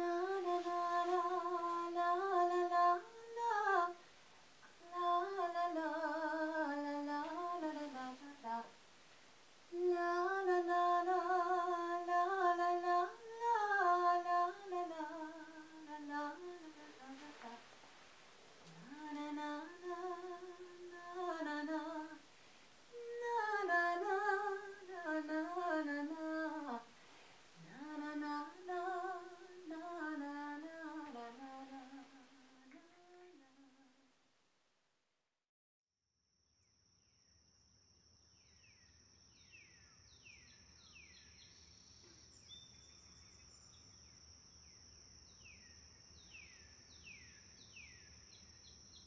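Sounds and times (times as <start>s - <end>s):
woman humming: 9.8s - 17.6s, 18.7s - 22.2s, 23.0s - 26.9s, 27.6s - 33.9s.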